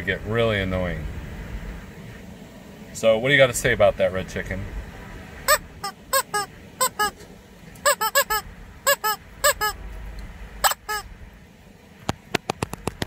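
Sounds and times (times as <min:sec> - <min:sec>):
rubber chicken toy squawking: 0:05.5 - 0:07.2, 0:07.8 - 0:09.8, 0:10.6 - 0:11.1
sharp clicks: 0:12.1 - 0:13.0.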